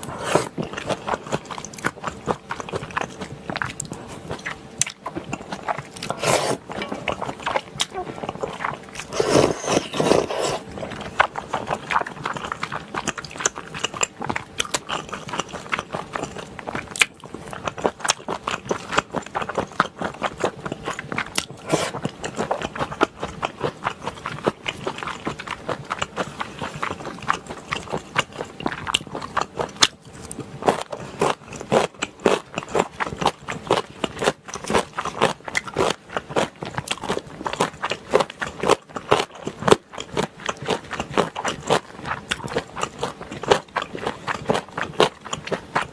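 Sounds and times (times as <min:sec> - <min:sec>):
person chewing wetly: 0:00.0 - 0:45.9
slurp: 0:06.0 - 0:07.0, 0:09.0 - 0:10.7, 0:21.6 - 0:22.0.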